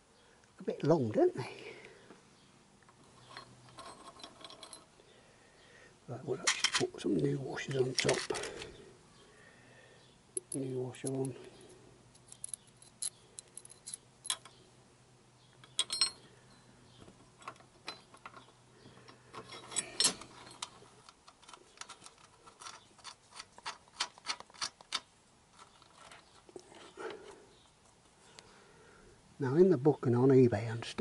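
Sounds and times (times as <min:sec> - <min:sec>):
metal bolt clicks and clinks: 0:03.2 - 0:04.9, 0:06.4 - 0:06.9, 0:10.4 - 0:11.3, 0:12.1 - 0:14.6, 0:15.6 - 0:16.6, 0:17.4 - 0:26.2
metal clatter: 0:03.2 - 0:04.9
short metallic rings: 0:15.7 - 0:16.7.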